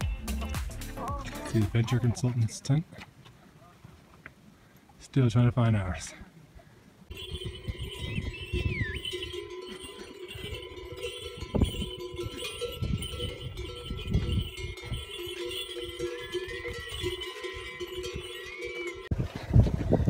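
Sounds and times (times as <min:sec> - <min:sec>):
yak bells ringing and clanking: 0:07.1 - 0:19.1
whistle-like pitch glides: 0:07.8 - 0:09.4.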